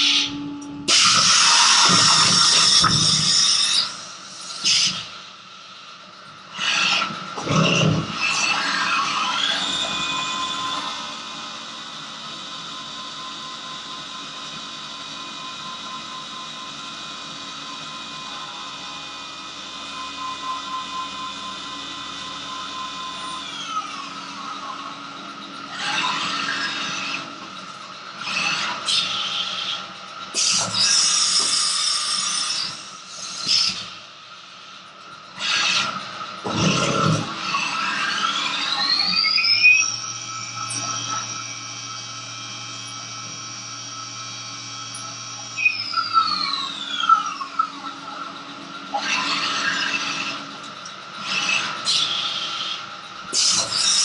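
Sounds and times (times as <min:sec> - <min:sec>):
milling machine spindle whine: 0:00.0 - 0:54.0.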